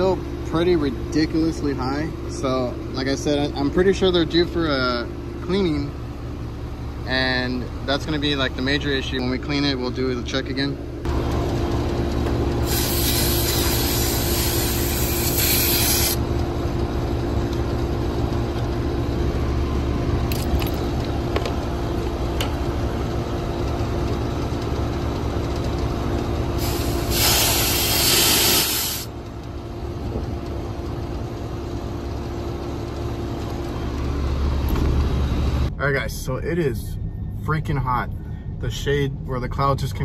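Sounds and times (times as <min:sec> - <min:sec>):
air conditioning units humming: 0:00.0 - 0:40.0
long hissing sprays: 0:12.6 - 0:16.2, 0:26.6 - 0:29.1.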